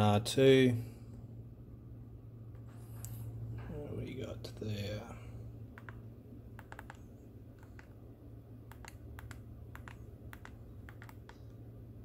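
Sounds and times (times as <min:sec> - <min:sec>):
low steady hum: 0:00.0 - 0:12.0
calculator keys clicking: 0:06.6 - 0:07.0, 0:07.6 - 0:08.0, 0:08.7 - 0:11.6.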